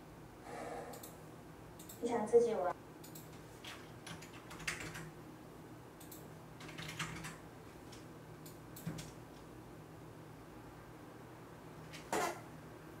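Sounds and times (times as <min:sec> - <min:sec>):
computer keyboard typing: 0:03.0 - 0:05.1, 0:06.0 - 0:07.4.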